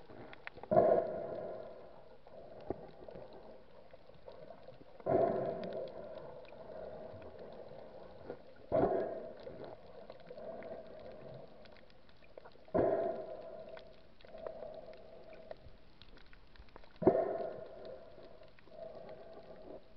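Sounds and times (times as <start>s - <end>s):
faint water noise: 0.0s - 19.9s
breathing through snorkel underwater: 4.3s - 11.7s.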